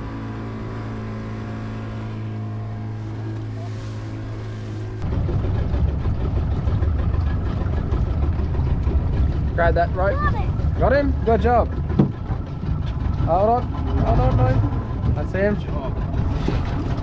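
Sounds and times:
outboard motor running: 0:00.0 - 0:17.0
wind buffeting microphone: 0:04.9 - 0:17.0.

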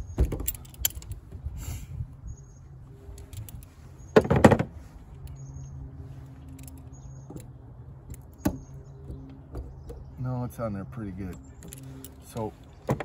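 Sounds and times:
metallic clatter of locking pliers: 0:00.4 - 0:01.2.

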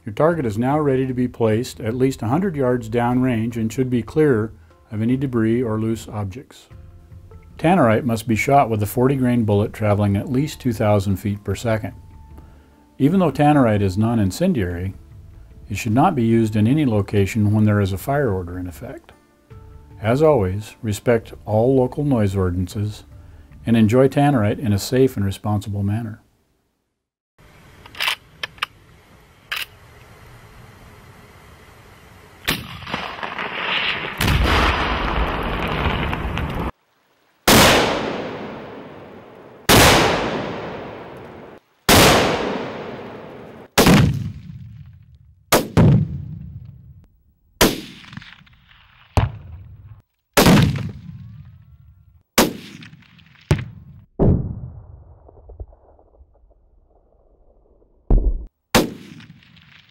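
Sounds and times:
sharp cracks: 0:32.4 - 0:47.0, 0:47.6 - 0:59.9
exploding targets booming: 0:32.5 - 0:36.7, 0:37.5 - 0:47.0, 0:47.6 - 0:51.8, 0:52.4 - 0:59.9.

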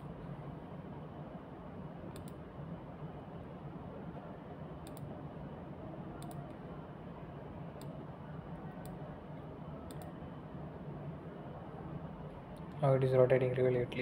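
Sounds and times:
low room hum: 0:00.0 - 0:14.0
computer mouse clicks: 0:02.1 - 0:02.4, 0:04.8 - 0:05.1, 0:06.2 - 0:06.6, 0:09.9 - 0:10.2.

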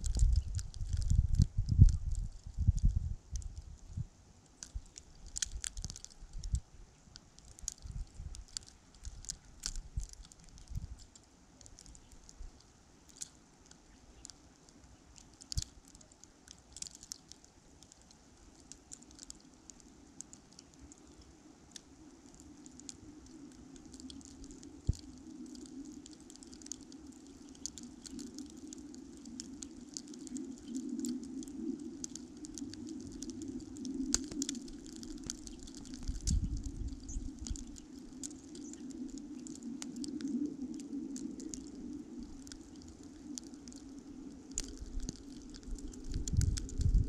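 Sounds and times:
wind buffeting microphone: 0:00.0 - 0:04.2, 0:07.8 - 0:11.0, 0:29.2 - 0:43.3, 0:43.9 - 0:47.0
faint steady hum: 0:00.0 - 0:47.0
light ticks and crackles: 0:00.0 - 0:47.0.

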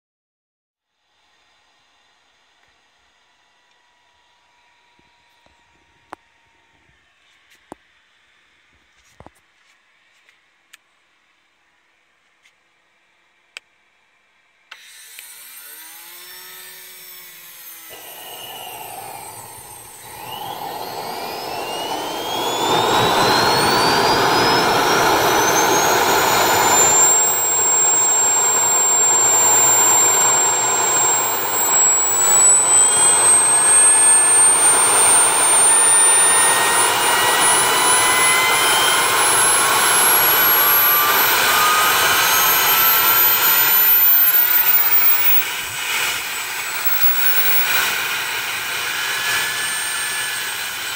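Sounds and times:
jet turbine whine rising: 0:17.9 - 0:50.9
turbine rushing noise: 0:18.0 - 0:50.7.

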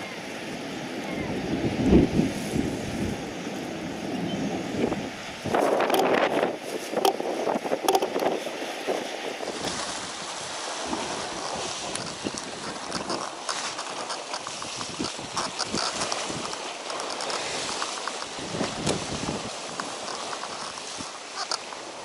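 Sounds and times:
sea water splashing on rocks: 0:05.4 - 0:22.0.

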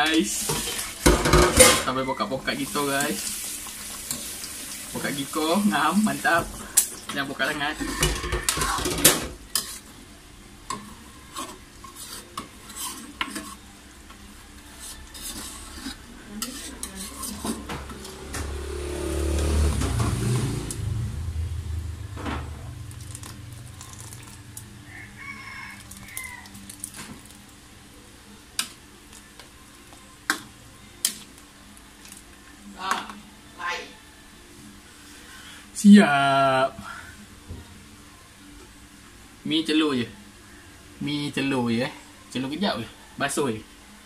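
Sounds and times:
ladle scraping a wok: 0:00.0 - 0:01.9, 0:02.5 - 0:09.9, 0:10.7 - 0:13.7, 0:14.6 - 0:18.3
low rumble: 0:19.8 - 0:24.7.

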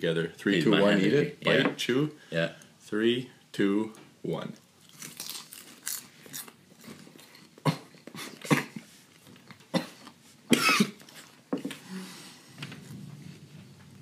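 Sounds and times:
person coughing: 0:07.6 - 0:08.8, 0:09.7 - 0:11.0.

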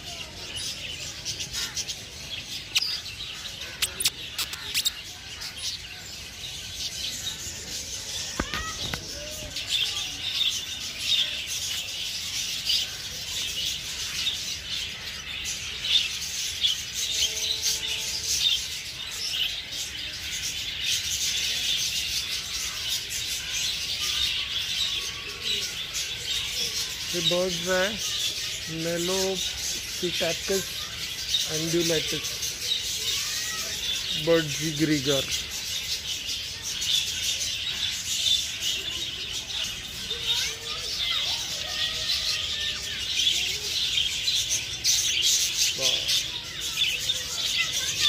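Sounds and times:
budgerigars chattering: 0:00.6 - 0:06.0, 0:20.3 - 0:41.2.

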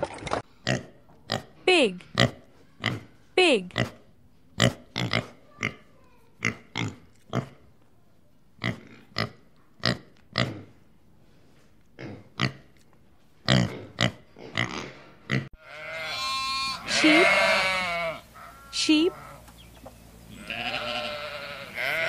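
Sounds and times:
pigs grunting: 0:08.6 - 0:10.8, 0:12.0 - 0:12.6, 0:13.4 - 0:19.4.

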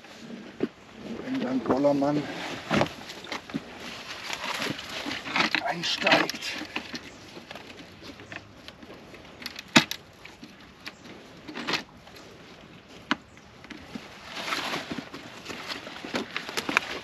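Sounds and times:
metal scraping on rocks: 0:01.3 - 0:07.2.

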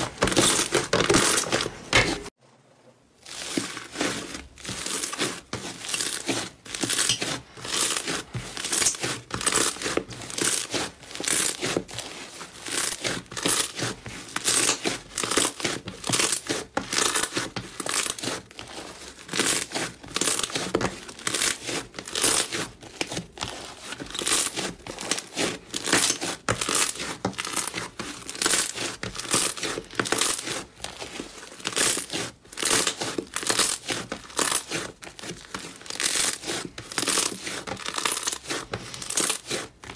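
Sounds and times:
slime crackling and popping: 0:31.6 - 0:39.9.

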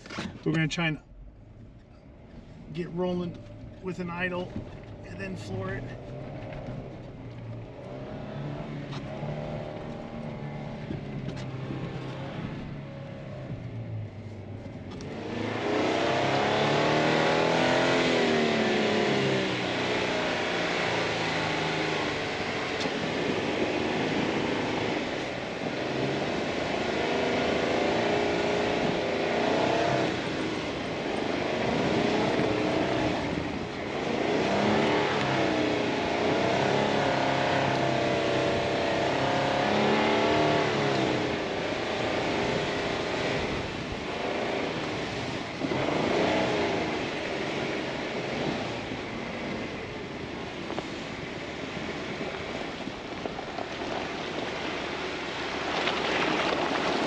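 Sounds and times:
car engine revving: 0:00.0 - 0:57.0
tyres churning snow: 0:15.1 - 0:57.0.

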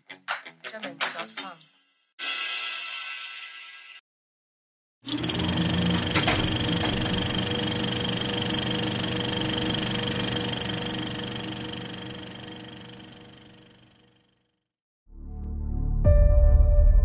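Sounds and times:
film projector running: 0:05.0 - 0:14.5.

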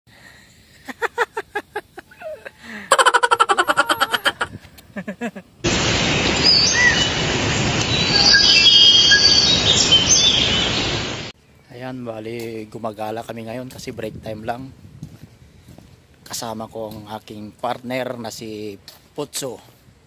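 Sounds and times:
rushing nature ambience: 0:00.1 - 0:13.6
man laughing heartily: 0:00.8 - 0:05.6
birds chirping: 0:05.8 - 0:12.2.

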